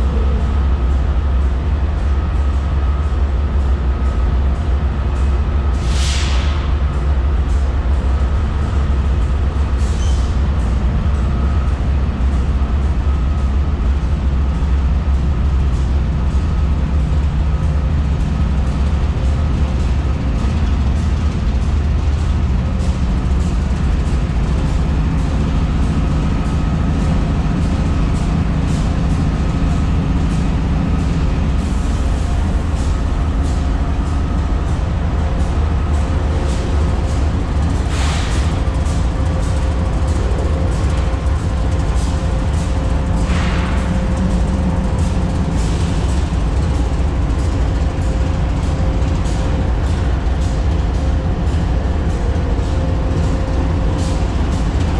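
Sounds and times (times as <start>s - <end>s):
locomotive engine idling: 0.0s - 54.9s.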